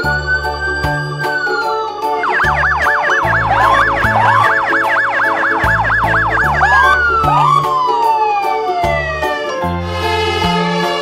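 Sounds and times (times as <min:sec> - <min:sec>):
electronic police siren: 0:00.0 - 0:09.6
music with low bass notes: 0:02.2 - 0:07.9.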